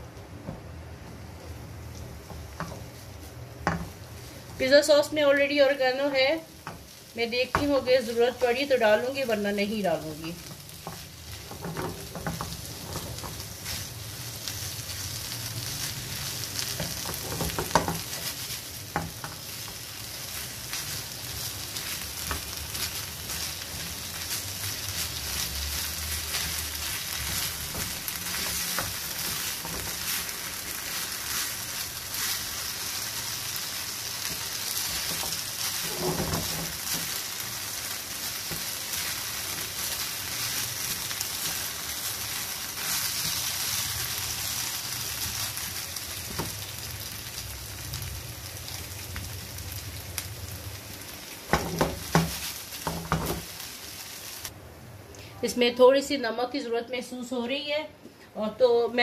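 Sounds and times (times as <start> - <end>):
food sizzling in a frying pan: 0.0 - 54.7
spatula knocking on pan: 3.6 - 4.0, 16.8 - 18.1, 51.5 - 53.4
wooden spatula scraping a pan: 10.3 - 14.0, 34.2 - 37.2.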